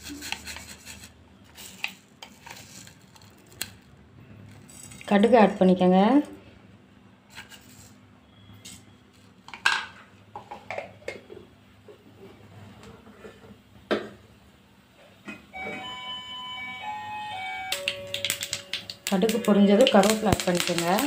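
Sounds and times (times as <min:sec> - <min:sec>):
mustard seeds popping in oil: 0:17.7 - 0:21.0.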